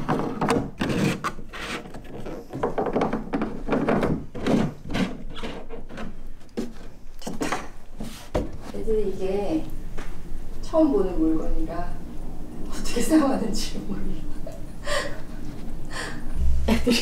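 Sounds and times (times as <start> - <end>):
plastic parts knocking and clicking: 0.0 - 7.7.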